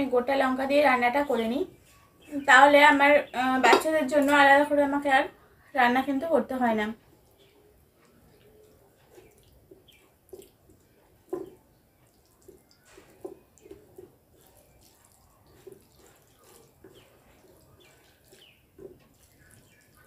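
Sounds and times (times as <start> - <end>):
chewing: 7.2 - 20.0.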